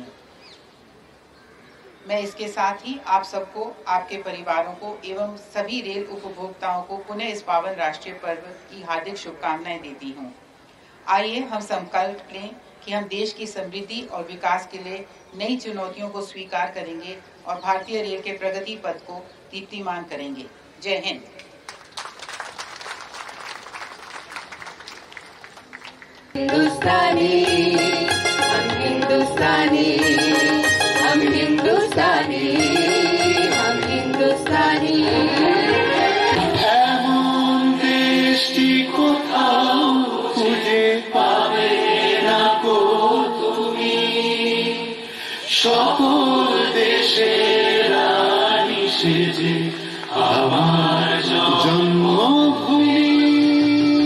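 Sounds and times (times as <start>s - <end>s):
audience applause: 21.7s - 26.4s
harmonium: 26.4s - 36.6s
instrumental music: 26.4s - 36.6s
tabla: 26.4s - 36.6s
group singing: 26.4s - 54.0s
keyboard: 26.4s - 54.0s.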